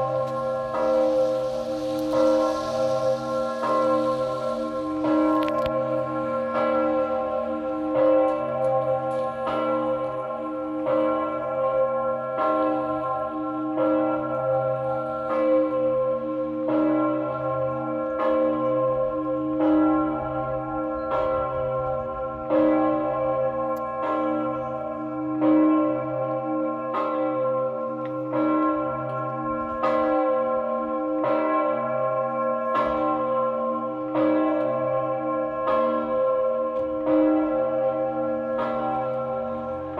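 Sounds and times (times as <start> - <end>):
large church bell ringing: 0.0 - 39.9.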